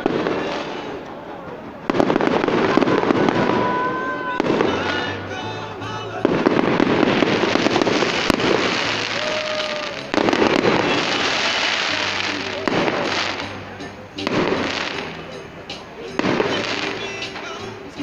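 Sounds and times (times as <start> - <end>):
fireworks crackling and popping: 0.0 - 18.0.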